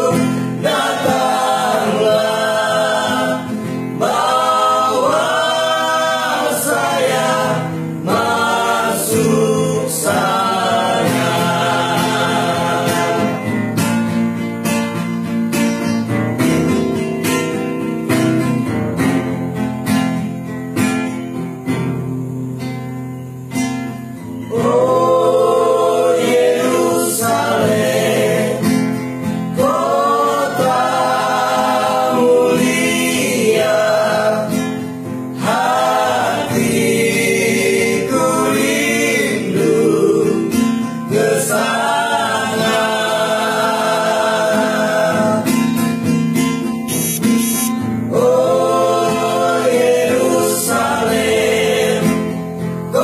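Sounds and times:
male group singing in harmony: 0:00.0 - 0:14.0, 0:24.5 - 0:46.0, 0:47.0 - 0:53.0
strummed acoustic guitar: 0:00.0 - 0:53.0.

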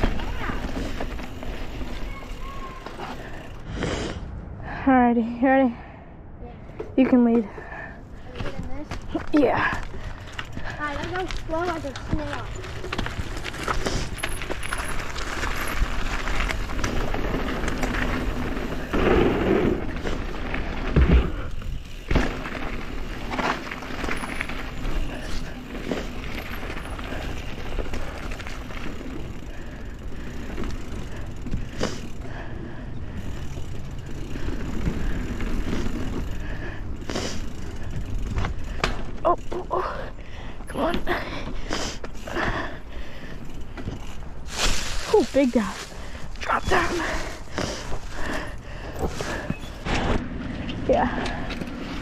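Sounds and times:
bike knocking over bumps: 0:00.0 - 0:02.2, 0:08.4 - 0:32.2, 0:33.2 - 0:39.7
bike tyres rolling over dirt: 0:00.0 - 0:03.8, 0:07.8 - 0:52.0.

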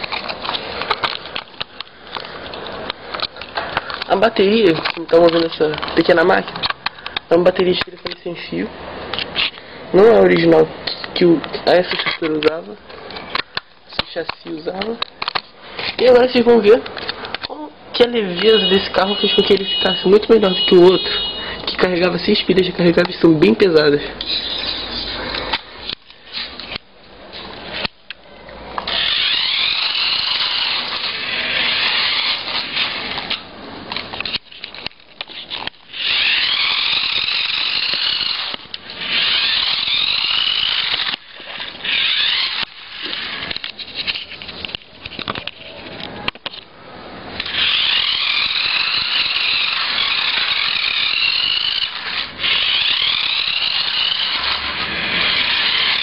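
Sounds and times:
toy car electric motor whining: 0:18.3 - 0:22.6, 0:28.8 - 0:33.4, 0:34.0 - 0:44.4, 0:47.3 - 0:56.0.

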